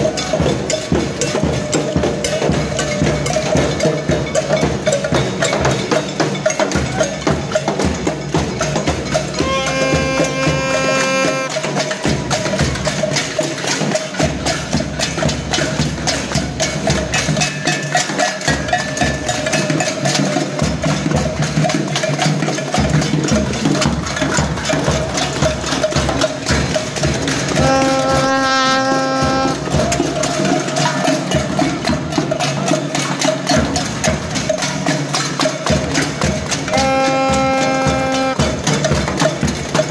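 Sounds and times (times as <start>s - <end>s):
crowd beating hand percussion: 0.0s - 39.9s
held pitched note: 9.4s - 11.5s.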